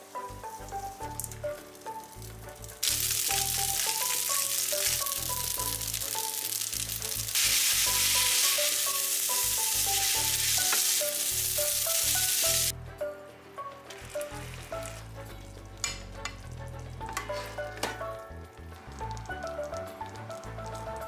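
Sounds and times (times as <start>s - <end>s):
pasta sizzling in a pan: 0.0s - 12.7s
light plucked background music: 0.0s - 21.0s.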